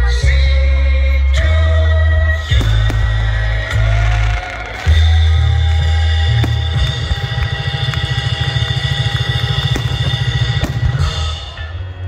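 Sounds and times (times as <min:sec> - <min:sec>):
loud music with heavy bass: 0:00.0 - 0:12.0
fireworks bursting: 0:02.4 - 0:11.9.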